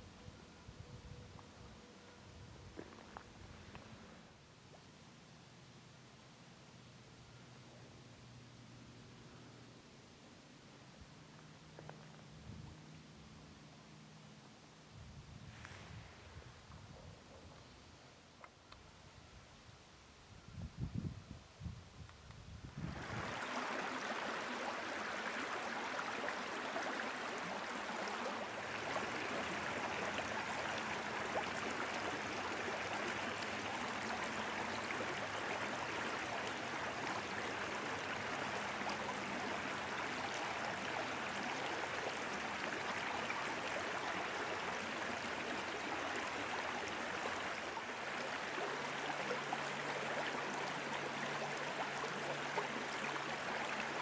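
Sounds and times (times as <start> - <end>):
faint low hum: 0.0 - 54.0
rush of flowing water: 22.8 - 54.0.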